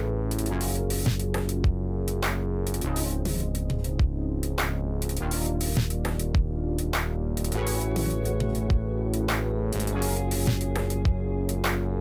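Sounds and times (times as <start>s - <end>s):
electronic music with held chords: 0.0s - 12.0s.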